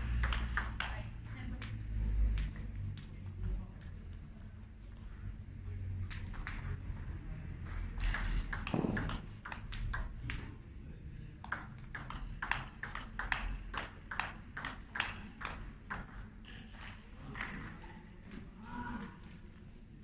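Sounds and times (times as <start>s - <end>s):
table tennis ball clicking: 0.1s - 4.6s, 6.0s - 10.5s, 11.4s - 17.7s.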